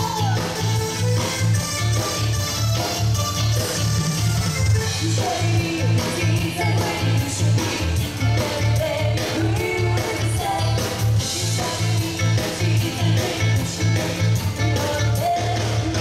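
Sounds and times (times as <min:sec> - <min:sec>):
live rock and roll band: 0:00.0 - 0:16.0
woman singing into microphone: 0:04.9 - 0:16.0.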